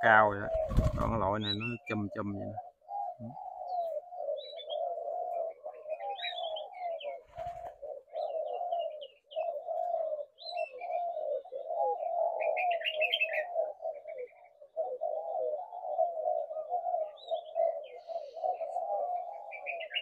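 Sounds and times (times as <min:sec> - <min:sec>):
doves cooing: 0:00.0 - 0:20.0
small birds chirping: 0:00.0 - 0:20.0.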